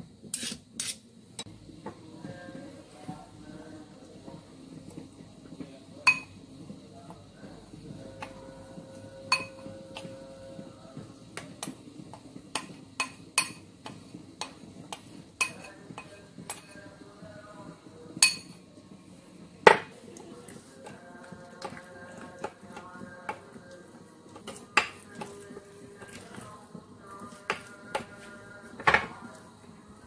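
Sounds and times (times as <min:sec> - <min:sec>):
metal spoon clinking on bowls: 0:06.1 - 0:06.3, 0:09.3 - 0:10.2, 0:12.6 - 0:16.8, 0:18.2 - 0:18.6.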